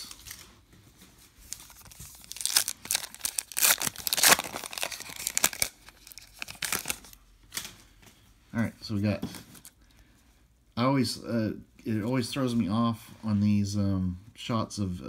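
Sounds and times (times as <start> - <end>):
foil wrapper tearing and crinkling: 1.5 - 7.2.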